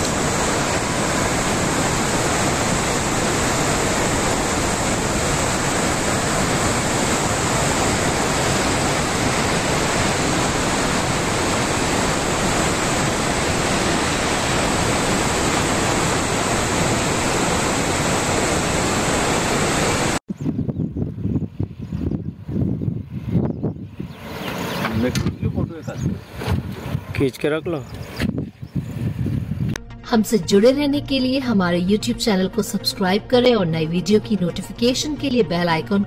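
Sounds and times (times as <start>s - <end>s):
river water rushing: 0.0s - 20.2s.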